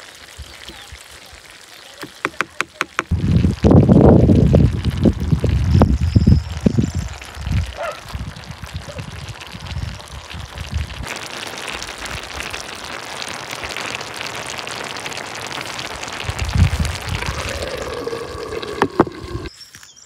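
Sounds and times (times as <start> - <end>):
food sizzling in a clay pot: 0.0 - 19.7
low rumbles: 16.2 - 19.5.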